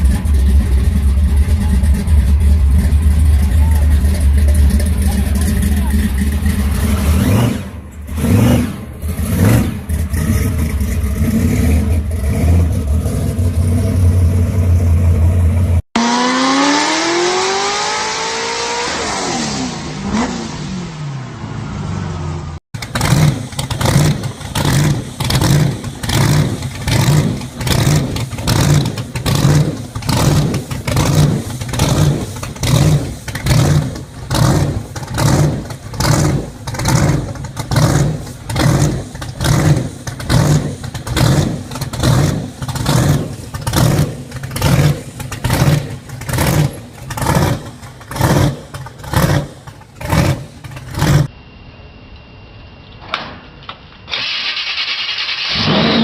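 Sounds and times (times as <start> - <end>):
car engine loping: 0.0 - 51.4
car engine revs dropping: 6.2 - 14.0, 16.0 - 51.3.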